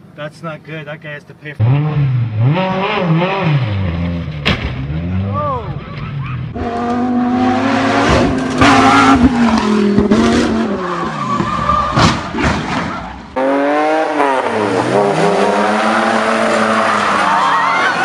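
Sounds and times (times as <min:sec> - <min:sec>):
second sports car engine revving: 0:01.6 - 0:05.4, 0:06.4 - 0:11.0, 0:13.4 - 0:17.2
sports car engine revving: 0:01.6 - 0:05.4, 0:06.5 - 0:11.0, 0:13.4 - 0:17.3.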